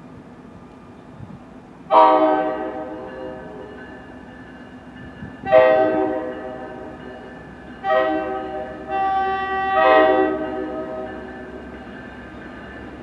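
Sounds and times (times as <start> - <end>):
train air horn blasts: 1.9 - 3.7, 5.4 - 7.0, 7.8 - 11.2.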